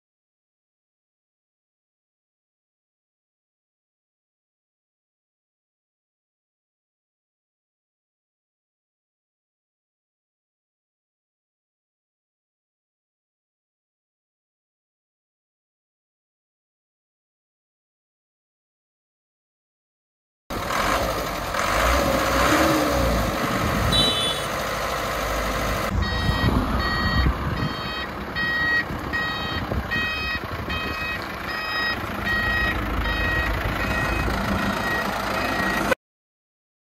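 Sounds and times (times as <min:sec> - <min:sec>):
truck engine running: 0:20.5 - 0:36.0
reversing alarm beeping: 0:23.9 - 0:24.6, 0:25.9 - 0:36.0.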